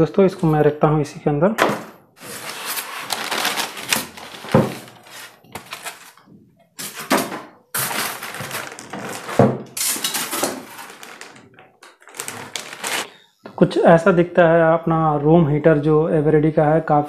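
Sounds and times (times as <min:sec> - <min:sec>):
foam rubbing: 0:02.2 - 0:06.2
plastic rustling: 0:02.2 - 0:13.2.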